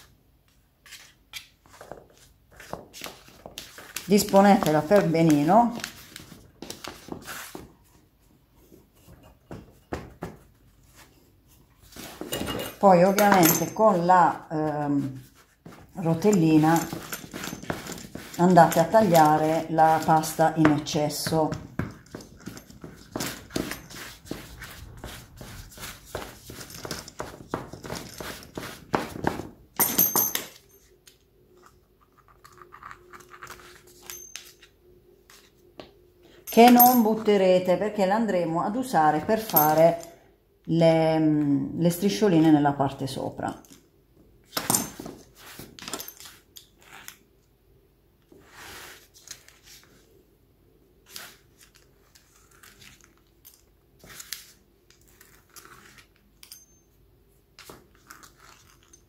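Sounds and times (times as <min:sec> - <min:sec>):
pastry wheel scraping: 0:11.8 - 0:21.5
hands patting pastry dough: 0:14.0 - 0:29.6.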